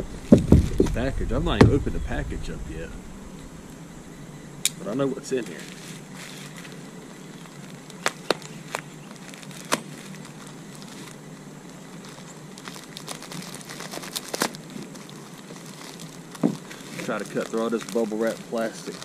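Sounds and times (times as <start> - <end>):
bubble wrap crackling: 5.3 - 19.0.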